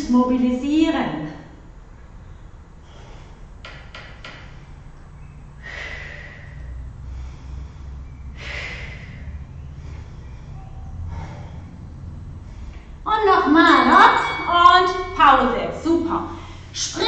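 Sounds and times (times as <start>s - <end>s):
long noisy exhalations: 2.2s - 3.8s, 4.5s - 13.1s
woman breathing hard: 2.2s - 13.1s, 16.2s - 16.8s.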